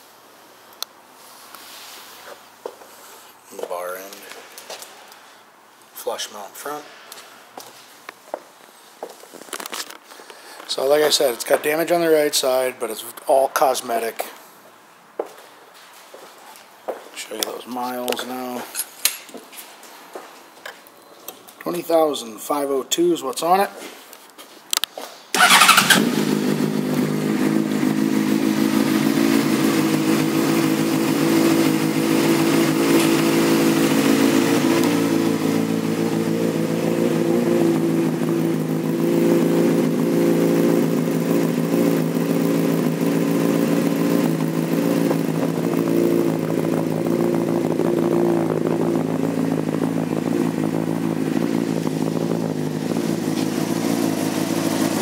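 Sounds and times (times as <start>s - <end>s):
motorcycle engine idling: 25.4s - 55.0s.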